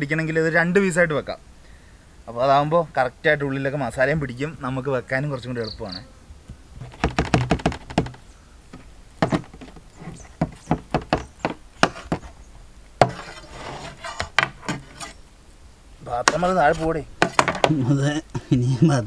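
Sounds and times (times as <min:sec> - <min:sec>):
knife chopping meat on metal tray: 0:13.0 - 0:13.3.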